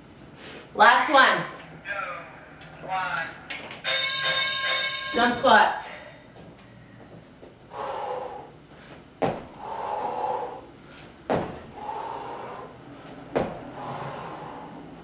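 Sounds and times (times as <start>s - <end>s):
loud hard breathing: 6.0s - 15.0s
feet landing on exercise mat: 8.8s - 9.7s, 10.9s - 12.0s, 13.0s - 14.0s.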